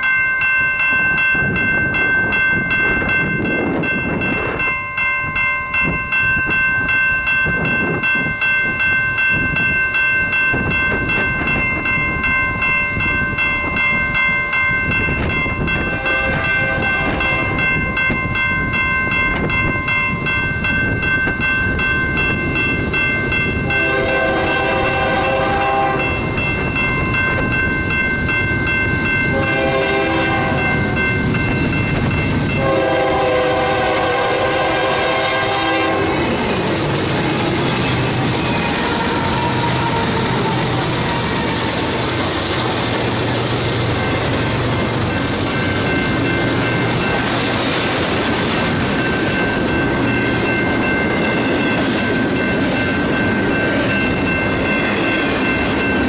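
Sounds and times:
crossing warning bell ringing: 0.0s - 56.0s
locomotive horn blasts: 15.9s - 17.6s, 23.6s - 26.2s, 29.3s - 30.8s, 32.6s - 36.2s, 38.6s - 41.9s.

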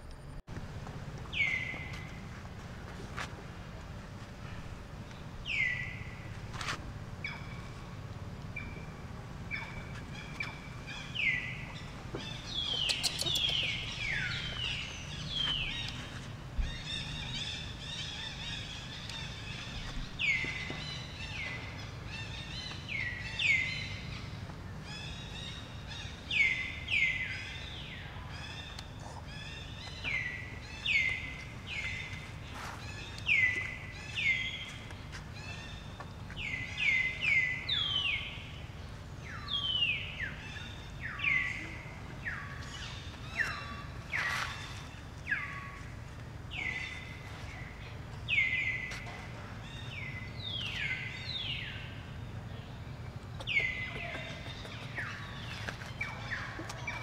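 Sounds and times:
low background hum: 0.0s - 57.0s
high-pitched animal calls: 12.4s - 14.6s.

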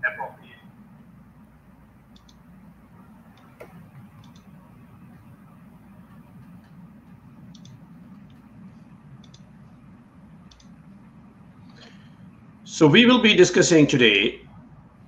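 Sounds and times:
low room hum: 0.0s - 15.0s
computer mouse clicks: 2.1s - 2.4s, 3.3s - 4.6s, 7.5s - 8.5s, 9.2s - 9.5s, 10.5s - 10.8s.

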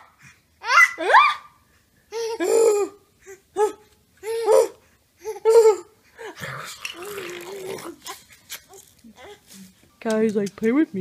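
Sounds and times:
baby squealing: 0.6s - 1.5s
baby laughing: 2.1s - 6.4s.

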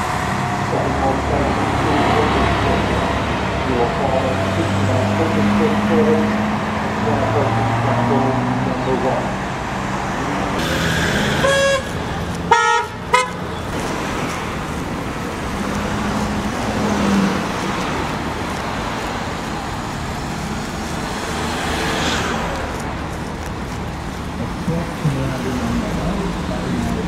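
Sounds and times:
road traffic noise: 0.0s - 27.0s
vehicle horn toots: 10.6s - 13.4s.

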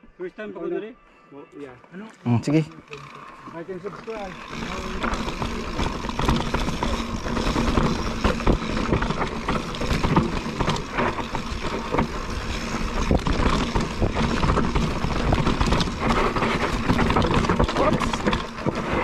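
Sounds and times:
bike tyres rolling over dirt: 2.8s - 19.0s
bike rattling over bumps: 2.9s - 19.0s
wind rumbling on microphone: 5.0s - 19.0s.

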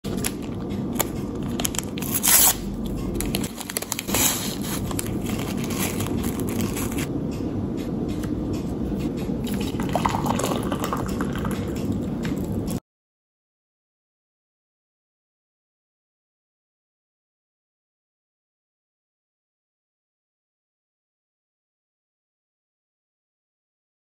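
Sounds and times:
paper crinkling and rustling: 0.1s - 7.1s
hot water pouring into a mug: 9.5s - 11.9s.

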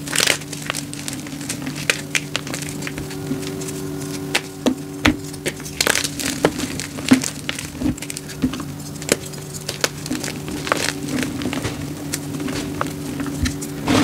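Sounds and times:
chalk blocks crunching: 0.0s - 14.0s.

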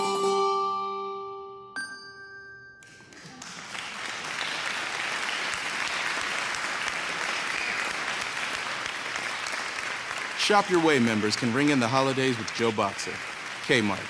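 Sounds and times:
bell chime: 1.8s - 3.2s
applause: 2.8s - 14.0s.

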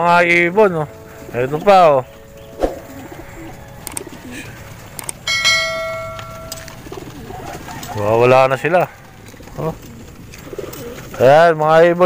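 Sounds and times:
pigeons cooing: 0.0s - 11.4s
sharp metallic ring: 5.3s - 6.8s.

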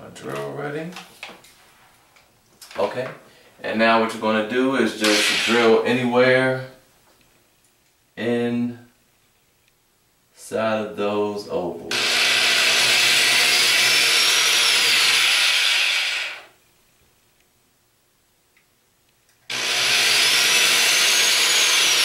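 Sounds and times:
electric drill whining: 5.0s - 5.8s, 11.9s - 16.5s, 19.5s - 22.0s.

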